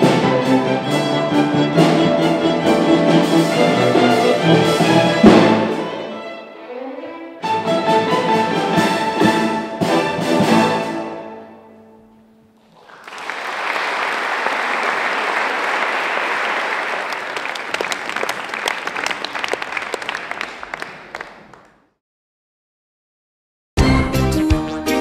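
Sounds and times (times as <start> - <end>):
audience applauding: 12.6 - 21.9.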